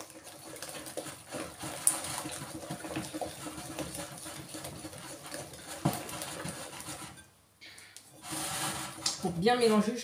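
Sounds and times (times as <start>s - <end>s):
whisk knocking against bowl: 0.0s - 7.2s
whisk beating batter in glass bowl: 0.0s - 7.3s, 8.2s - 10.0s.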